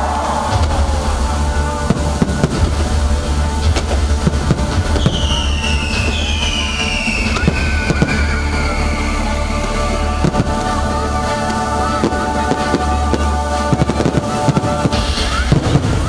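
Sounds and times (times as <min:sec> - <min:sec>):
deep rumble: 0:00.0 - 0:16.0
fireworks bangs and crackles: 0:00.0 - 0:16.0
falling firework whistles: 0:04.9 - 0:10.8.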